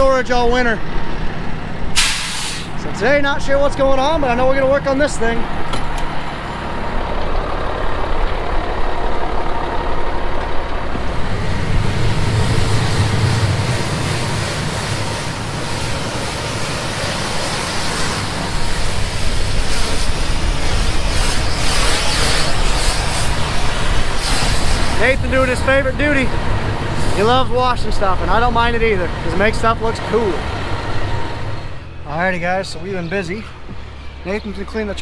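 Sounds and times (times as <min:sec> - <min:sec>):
water jet hissing: 0:02.0 - 0:02.8, 0:11.0 - 0:25.3
engine droning: 0:02.6 - 0:35.0.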